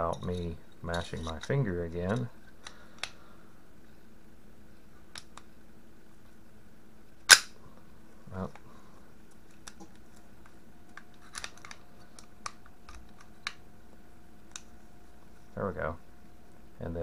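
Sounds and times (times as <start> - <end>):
pistol slide metallic snap: 7.3 - 7.5.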